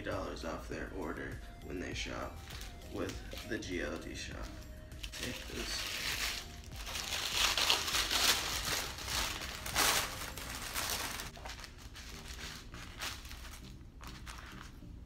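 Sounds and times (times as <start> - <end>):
wrapping paper crinkling: 2.4 - 14.8.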